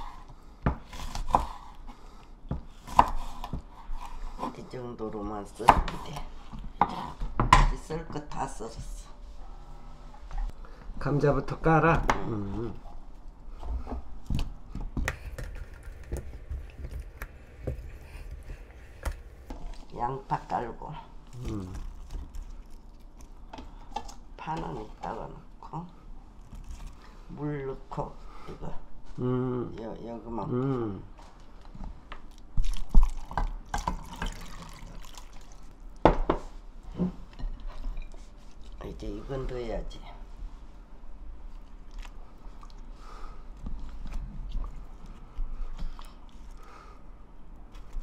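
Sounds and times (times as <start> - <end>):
water pouring into a pot: 32.7 - 35.7.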